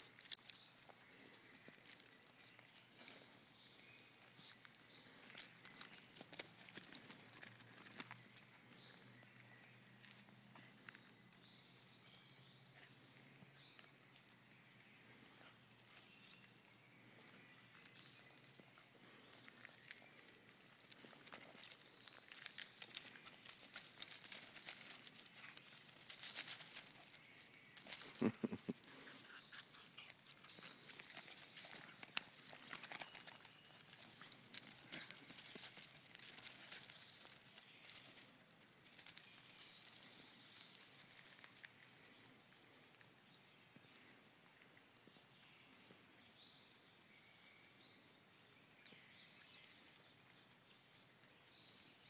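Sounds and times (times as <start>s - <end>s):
dry leaves crunching under paws: 21.0s - 42.0s.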